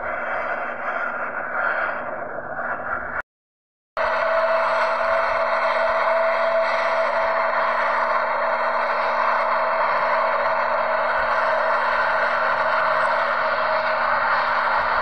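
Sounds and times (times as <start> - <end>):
jet engines running: 4.0 - 15.0.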